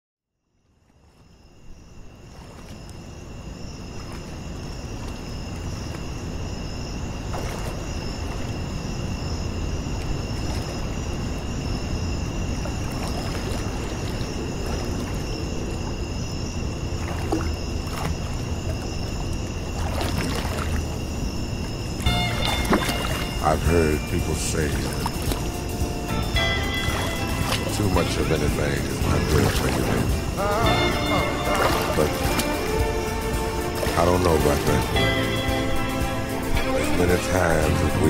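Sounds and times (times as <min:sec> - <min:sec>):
rushing water: 0:01.0 - 0:38.0
brief splashes: 0:02.3 - 0:02.9, 0:07.3 - 0:08.5, 0:12.6 - 0:15.3, 0:17.0 - 0:19.1, 0:19.7 - 0:21.0, 0:22.3 - 0:23.7, 0:24.8 - 0:25.6, 0:26.7 - 0:35.0.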